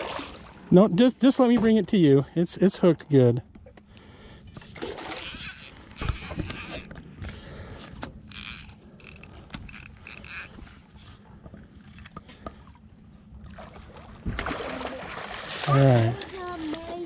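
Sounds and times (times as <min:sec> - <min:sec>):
fishing reel whirring and clicking: 0:05.1 - 0:07.0, 0:08.3 - 0:10.7, 0:11.9 - 0:12.1.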